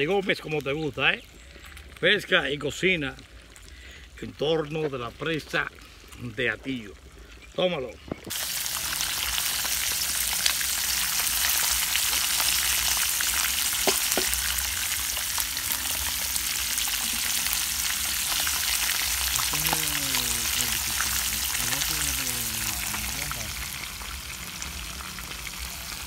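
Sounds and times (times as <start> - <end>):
fish deep-frying in oil: 8.3 - 26.0
oil pops: 13.8 - 14.5.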